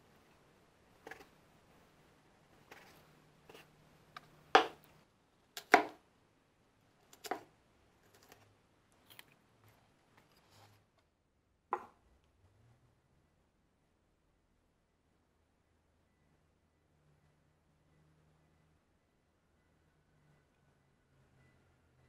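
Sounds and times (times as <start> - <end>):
axe chopping on cutting board: 4.6 - 4.8, 5.6 - 6.0
axe knocking on wooden bench: 4.6 - 4.8.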